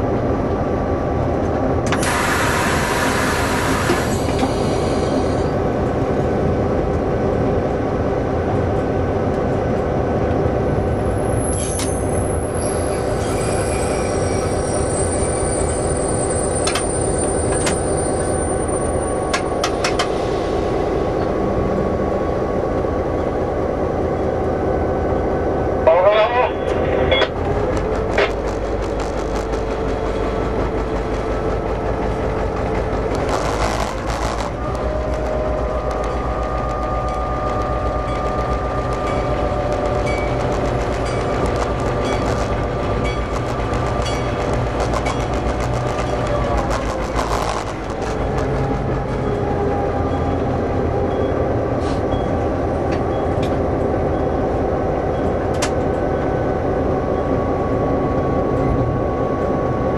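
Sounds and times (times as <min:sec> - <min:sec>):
locomotive engine rumbling: 0:00.0 - 0:59.9
wheels clicking on track: 0:08.7 - 0:20.2, 0:26.7 - 0:56.5.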